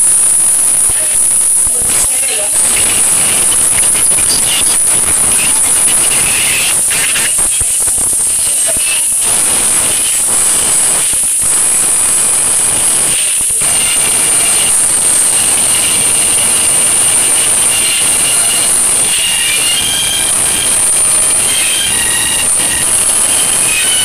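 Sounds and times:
loud steady hiss: 0:00.0 - 0:24.0.

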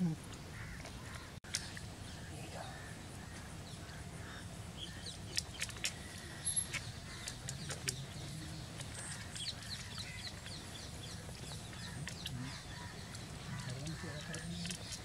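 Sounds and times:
small birds chirping: 0:00.0 - 0:15.0.

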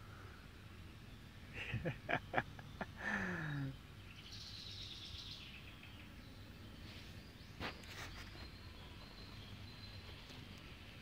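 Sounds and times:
faint outdoor background: 0:00.0 - 0:11.0
small birds chirping: 0:00.0 - 0:11.0.

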